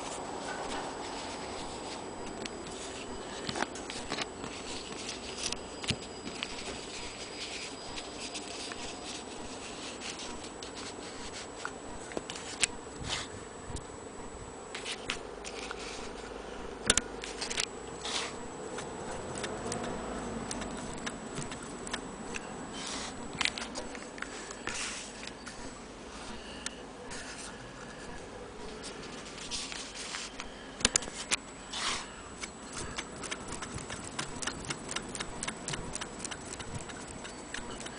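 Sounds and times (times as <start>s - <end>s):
faint steady hum: 0.0s - 37.9s
sharp clicks: 32.4s - 37.9s.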